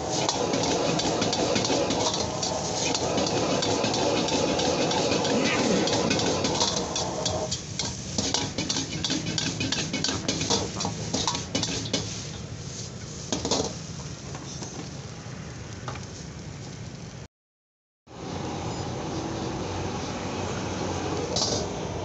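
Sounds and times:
metal ladle scraping a wok: 0.0 - 13.8
rice frying in a wok: 0.0 - 17.3, 18.1 - 22.0.

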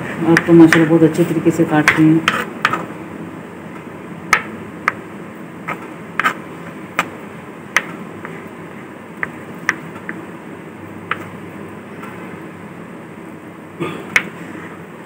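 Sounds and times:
background hum: 0.0 - 15.0
knife chopping on plastic board: 1.8 - 2.9.

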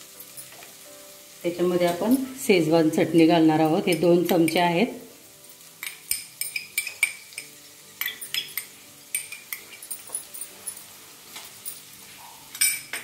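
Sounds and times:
spoon clinking against glass bowl: 5.8 - 10.8, 12.5 - 13.0.

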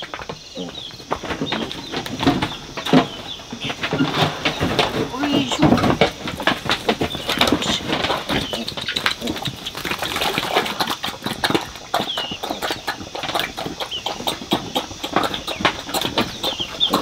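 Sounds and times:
bird chirps: 7.0 - 9.2, 11.9 - 12.8.

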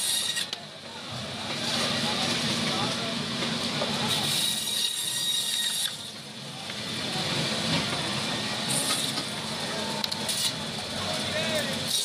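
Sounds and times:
band saw cutting fish: 0.0 - 0.6, 4.1 - 6.2, 8.6 - 9.3.

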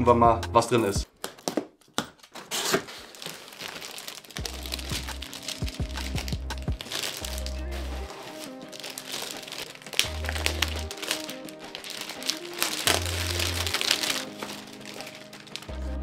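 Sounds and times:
background music with deep bass: 0.0 - 1.0, 4.4 - 16.0
plastic film crinkling: 1.0 - 15.9.

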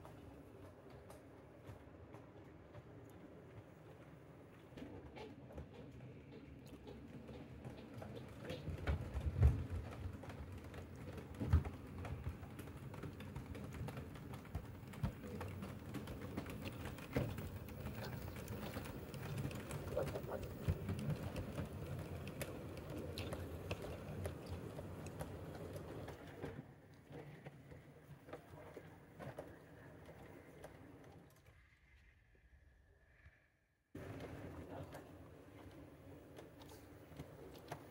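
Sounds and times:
wheels clicking on rail joints: 0.0 - 31.3, 34.0 - 37.9
model train rumbling: 6.0 - 30.8.

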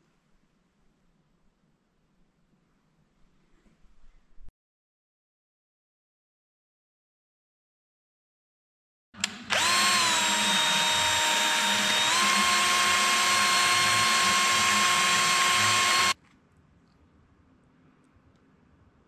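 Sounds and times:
cordless drill motor whine: 9.2 - 16.2.

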